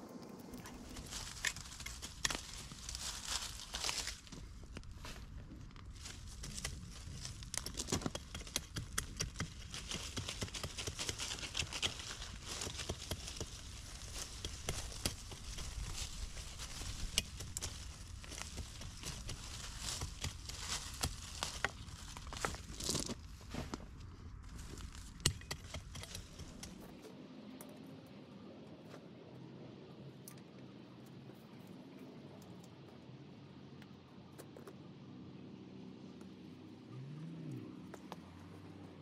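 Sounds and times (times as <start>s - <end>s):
dry plant debris rustling: 0.4s - 26.8s.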